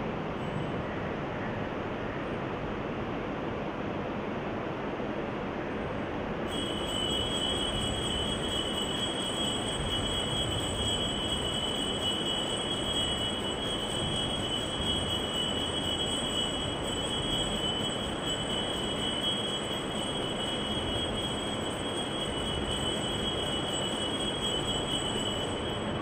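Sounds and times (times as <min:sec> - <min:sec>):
steady high-pitched tone: 0:06.5 - 0:26.0.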